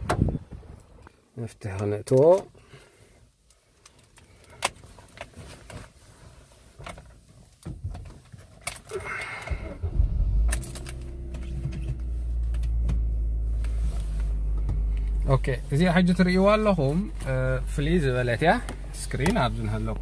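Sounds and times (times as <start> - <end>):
car engine idling: 9.0 - 20.0.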